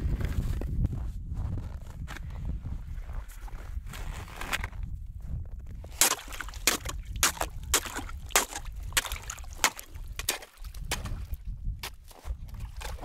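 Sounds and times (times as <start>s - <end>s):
slush and ice crunching sloshing: 5.8s - 13.0s.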